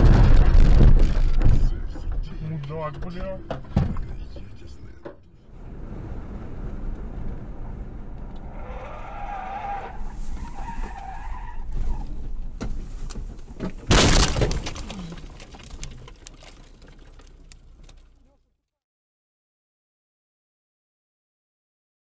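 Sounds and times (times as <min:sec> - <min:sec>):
loud car crash: 0:00.0 - 0:02.2, 0:13.8 - 0:17.0
tyres squealing: 0:08.5 - 0:12.2
branches cracking and scraping: 0:12.9 - 0:18.2.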